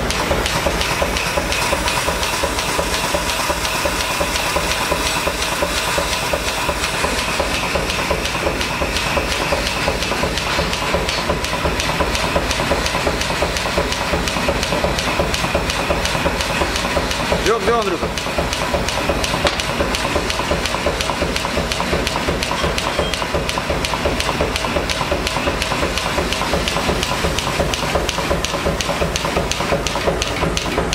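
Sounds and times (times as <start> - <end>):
power hammer chugging: 0.0 - 30.9.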